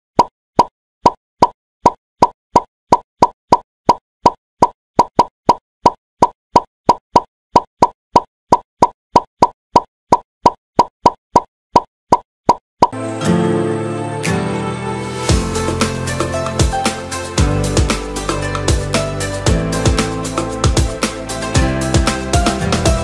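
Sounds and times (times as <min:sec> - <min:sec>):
plop sound effect: 0:00.2 - 0:13.0
music: 0:13.0 - 0:23.0.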